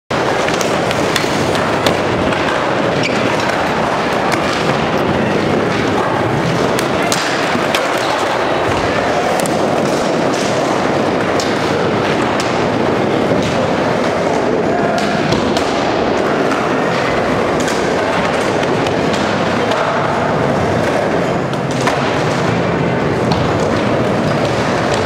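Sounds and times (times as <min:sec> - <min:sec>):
skateboard clacks and knocks: 0:00.1 - 0:25.0
skateboard wheels rolling: 0:00.1 - 0:25.0
faint voices: 0:13.6 - 0:17.6.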